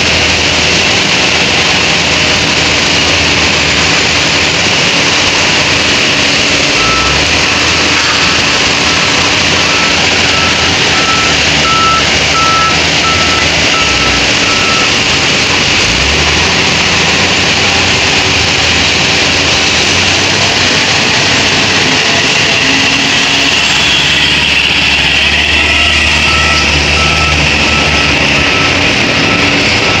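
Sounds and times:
diesel truck engine running: 0.0 - 30.0
reversing alarm beeping: 6.6 - 18.4, 21.1 - 30.0.

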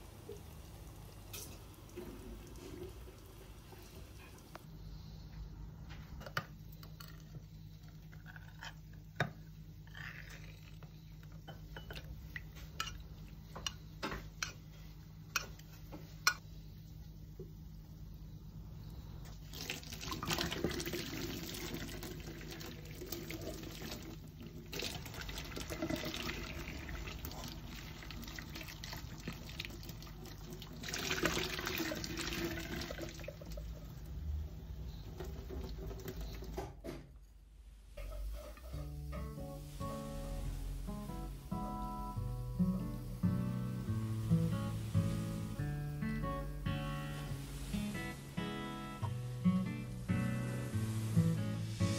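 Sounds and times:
tap water pouring into sink: 19.4 - 34.0, 35.0 - 36.7.

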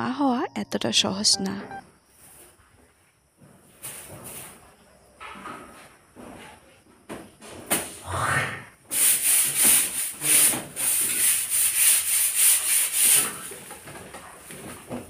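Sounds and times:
broom scraping on cement wall: 8.9 - 13.6.

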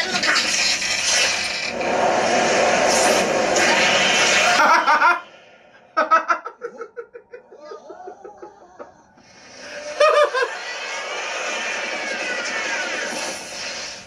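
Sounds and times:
man laughing: 4.4 - 5.2, 6.0 - 9.1, 9.9 - 10.5.

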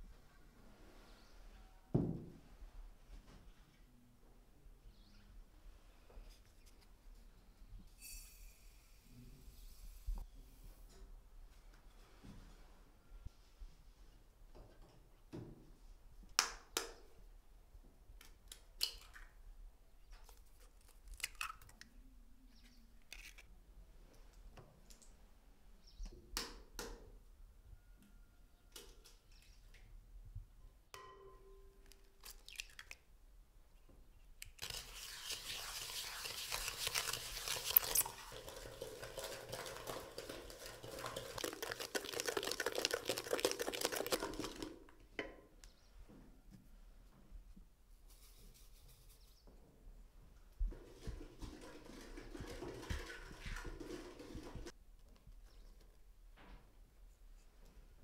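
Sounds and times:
eggs beaten in glass bowl: 34.6 - 44.8
eggs cracked against glass bowl: 36.3 - 44.7.

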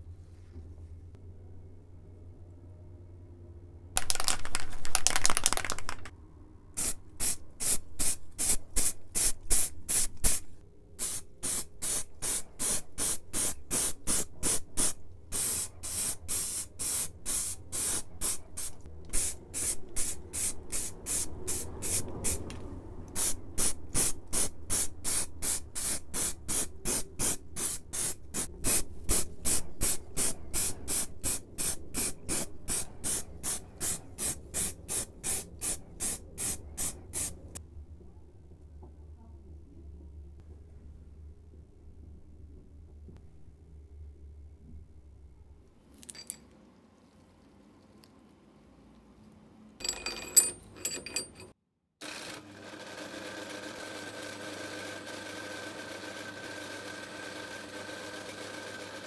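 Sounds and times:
spray can spraying: 4.0 - 6.1, 6.8 - 10.4, 11.0 - 22.4, 23.1 - 37.4.

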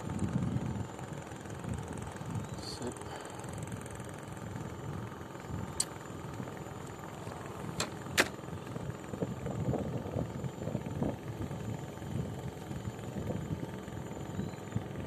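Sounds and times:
steady low rumble: 0.0 - 15.0
sharp clicks: 5.8 - 6.0.

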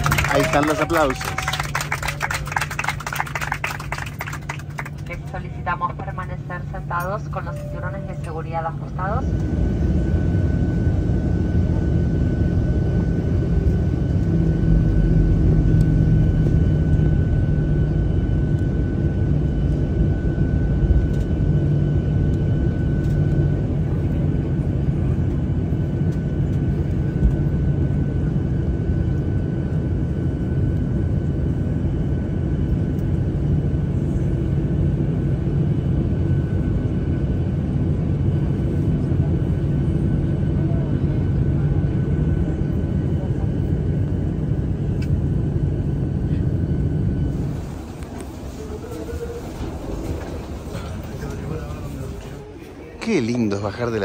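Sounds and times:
high whine: 0.0 - 23.3
jet engines idling in cabin: 0.0 - 54.0.

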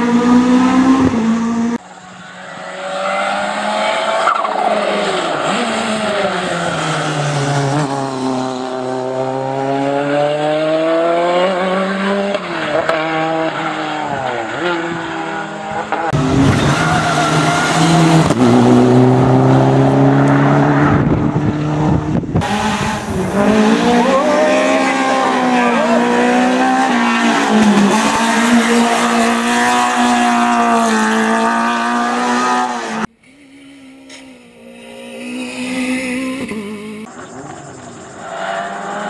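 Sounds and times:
race car engine revving: 0.0 - 1.8, 2.5 - 33.1
turbocharged car engine at high revs: 5.5 - 33.1.

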